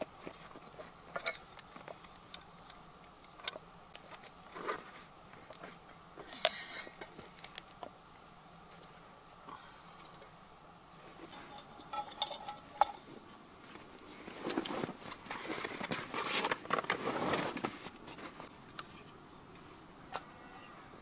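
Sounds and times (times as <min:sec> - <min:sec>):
rummaging in a canvas bag: 0:13.7 - 0:18.5.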